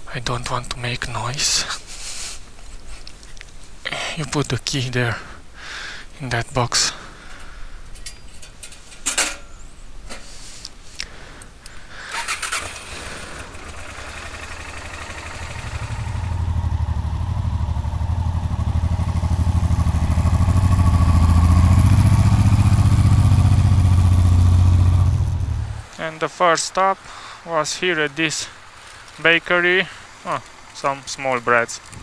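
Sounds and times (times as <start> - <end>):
handling clicks and rustles: 2.4 - 4.8, 7.3 - 15.9
motorcycle engine idling: 12.1 - 25.8.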